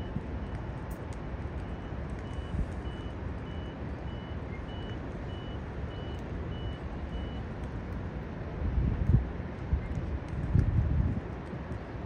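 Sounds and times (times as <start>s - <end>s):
vehicle reversing alarm beeps: 0.0s - 0.6s, 1.6s - 7.5s
low rumble of city traffic: 0.0s - 12.0s.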